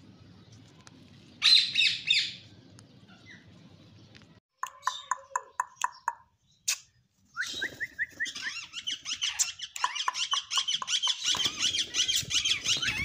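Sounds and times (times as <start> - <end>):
parakeets chattering: 8.3 - 13.0.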